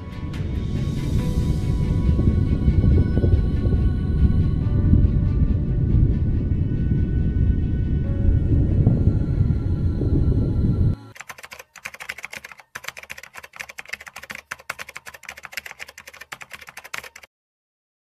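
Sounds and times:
bass-heavy background music: 0.0 - 11.1
keyboard typing clicks: 11.1 - 17.3.

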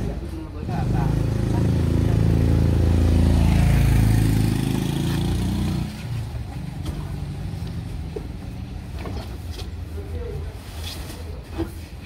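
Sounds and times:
motor vehicle engine running: 0.0 - 9.4.

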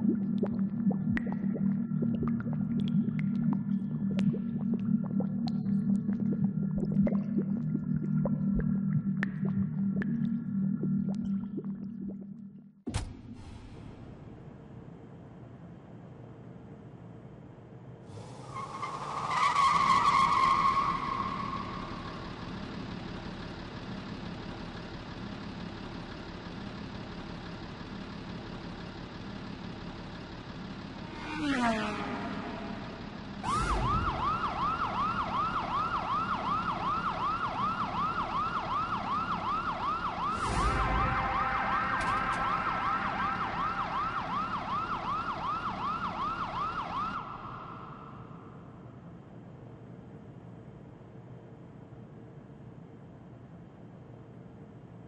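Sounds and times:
siren-like warbling tone: 0.0 - 12.6, 33.4 - 48.2
electronic drone: 0.0 - 12.7, 40.2 - 44.3.

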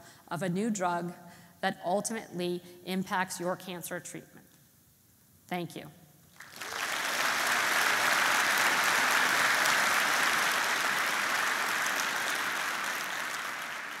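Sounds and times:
large audience applauding: 6.4 - 14.0.

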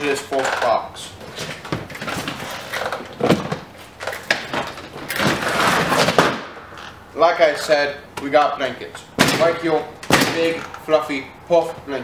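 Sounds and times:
items knocking: 0.4 - 6.5.

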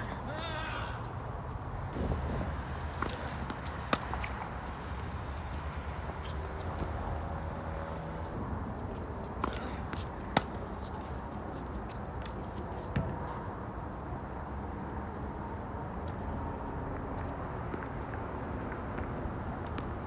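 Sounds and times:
tennis racket hitting ball: 2.7 - 7.0, 9.4 - 11.2.

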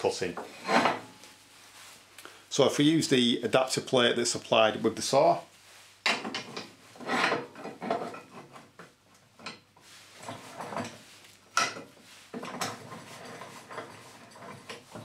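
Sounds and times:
metal clanking and scraping: 0.3 - 1.4, 6.0 - 8.8, 9.4 - 15.0.

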